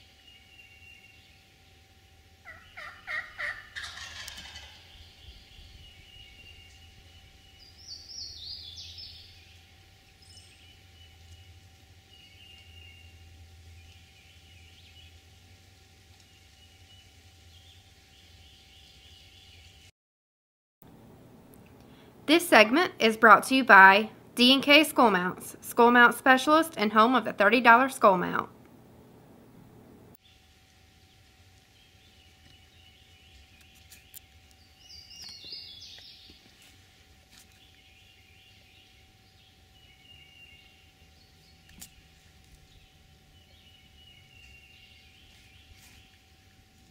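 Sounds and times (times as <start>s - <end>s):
faint steady hum: 0.0s - 19.9s, 20.8s - 46.9s
songbirds singing: 0.0s - 19.9s, 30.2s - 46.9s
faint bird calls: 2.4s - 11.5s.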